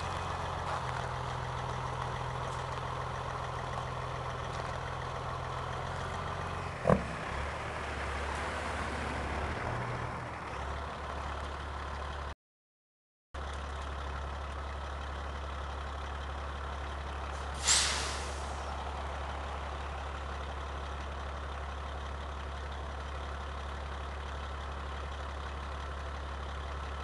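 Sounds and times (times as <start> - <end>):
diesel truck engine idling: 0.0 - 12.4, 13.4 - 27.0
air brake hiss: 17.4 - 18.6.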